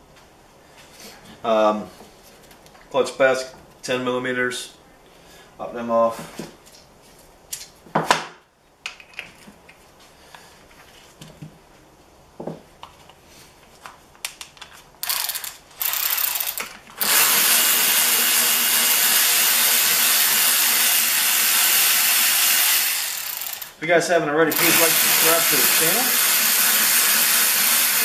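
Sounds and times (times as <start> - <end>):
electric ratchet motor running: 15.0 - 23.8, 24.5 - 28.0.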